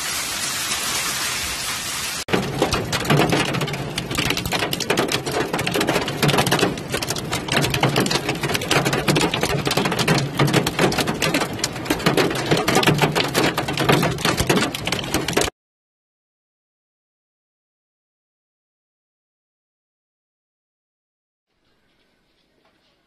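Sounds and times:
hail drumming on car roof: 2.3 - 15.5.

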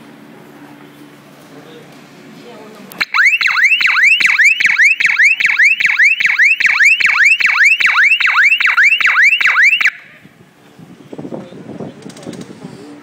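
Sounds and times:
electronic siren whooping: 3.0 - 10.2.

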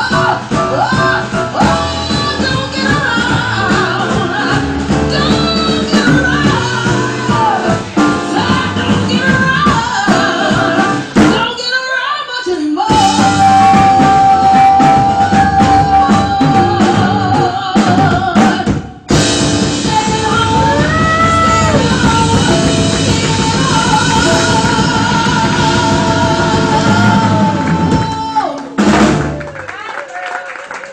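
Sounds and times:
jazz band playing: 0.0 - 11.7, 12.8 - 29.7
person singing with vibrato: 0.0 - 28.8.

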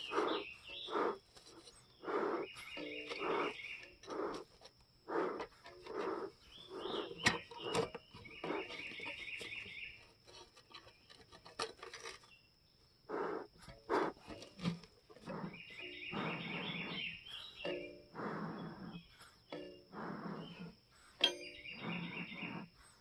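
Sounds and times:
bellows puffing air: 0.0 - 1.2, 2.0 - 4.4, 5.1 - 7.2, 13.1 - 14.3, 18.2 - 21.2
bird trilling: 0.0 - 1.2, 1.9 - 4.4, 5.1 - 9.9, 15.2 - 22.7.

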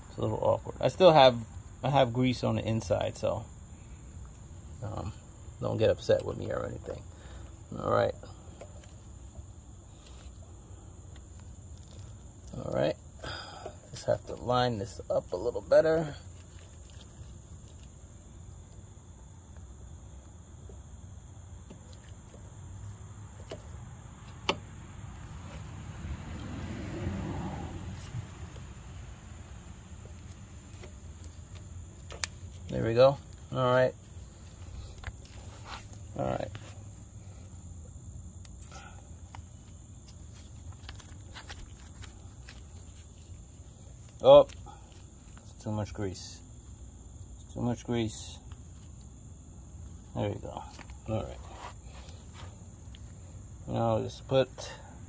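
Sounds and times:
crickets trilling: 0.0 - 55.0
low background hum: 0.0 - 55.0
soft clicks of handled parts: 34.1 - 36.7.

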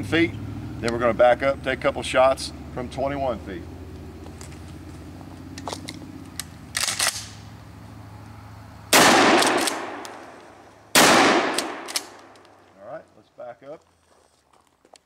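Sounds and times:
shotgun blasts with echo: 8.9 - 12.3.

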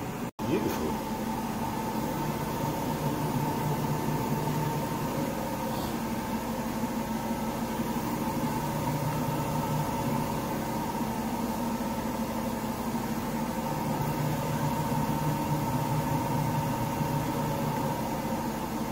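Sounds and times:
washing machine spinning: 0.0 - 18.9.

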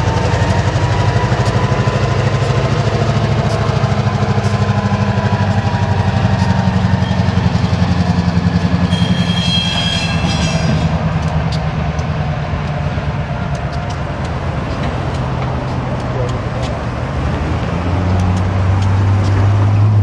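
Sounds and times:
wheels clicking over rails: 0.0 - 9.0, 10.2 - 20.0
diesel locomotive engines pulsing: 0.0 - 20.0
high metallic squeal: 3.5 - 11.0.

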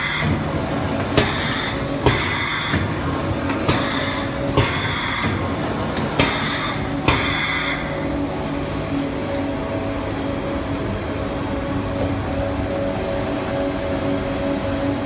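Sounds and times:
machine clacking: 0.0 - 7.9
hum of motors and conveyor: 0.0 - 15.0.

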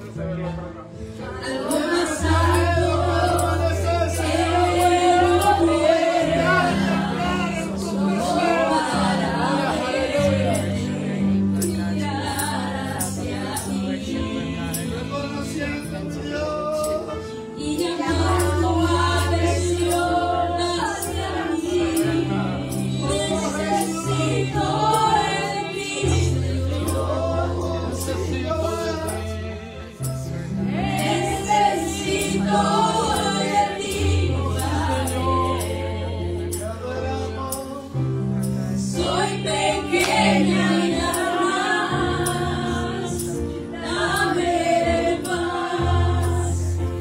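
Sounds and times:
woman singing: 17.6 - 26.9.

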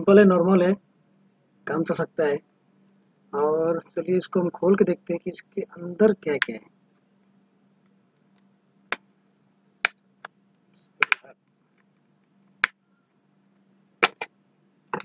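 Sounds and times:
plastic phone cover clicks: 14.0 - 14.3.

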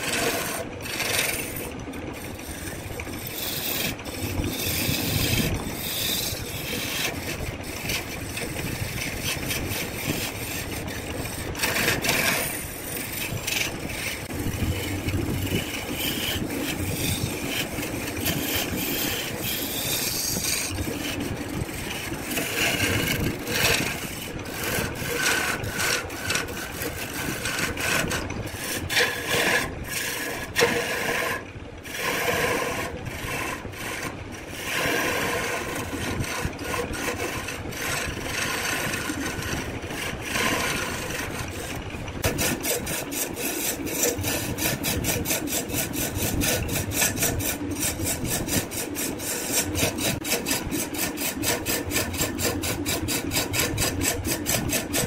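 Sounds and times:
lathe chisel scraping wood: 0.0 - 55.0.

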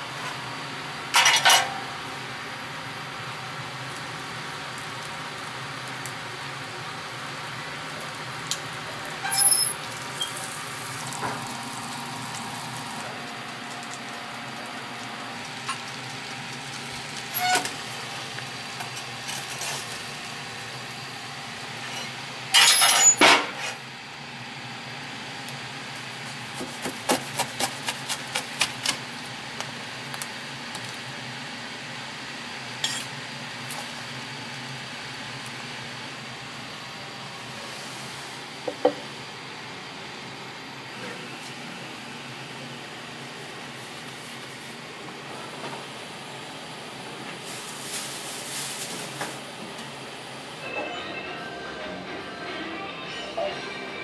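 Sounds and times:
ventilation fan hum: 0.0 - 54.0
metal clanks of utensils: 1.1 - 1.8, 21.8 - 23.8, 32.8 - 33.1.

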